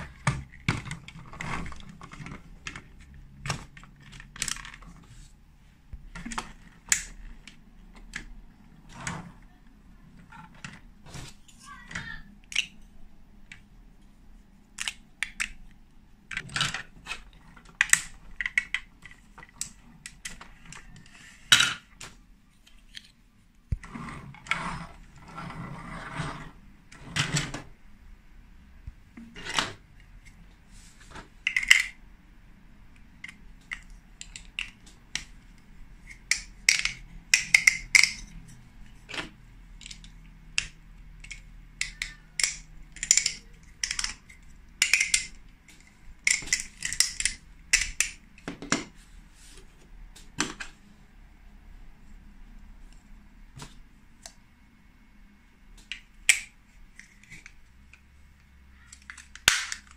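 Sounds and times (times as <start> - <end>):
plastic bricks clicking and clattering: 0.0 - 5.3, 6.0 - 9.5, 12.4 - 13.7, 14.7 - 23.2, 31.1 - 32.0, 33.0 - 48.9, 55.8 - 59.9
plastic bricks rattling scrape: 0.0 - 5.3.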